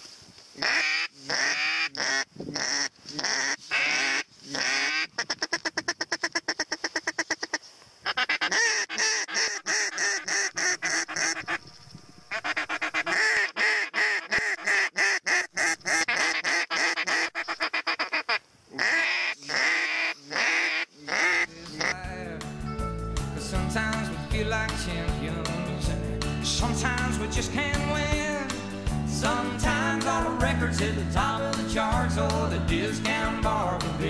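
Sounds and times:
waterfowl quacking and honking: 0.6 - 11.7, 12.3 - 22.0.

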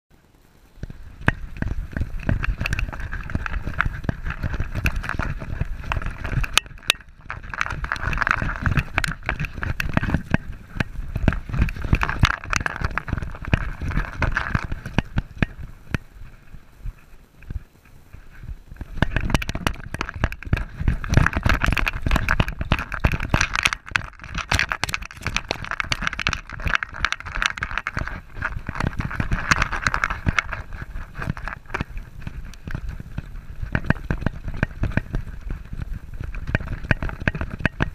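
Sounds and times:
wind rumble on microphone: 0.3 - 37.9
camera jolting: 1.3 - 15.4, 18.9 - 33.0.

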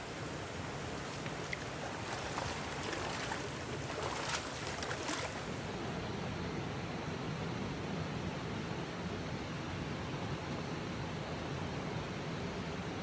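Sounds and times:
light splashes: 0.0 - 5.8
stream running over rocks: 0.0 - 6.0.

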